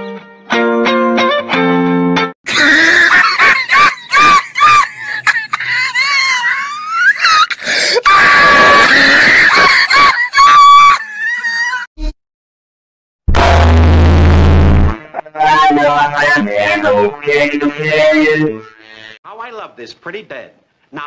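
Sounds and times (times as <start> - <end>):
person screaming: 2.5 - 3.3, 6.0 - 11.9, 15.3 - 18.5.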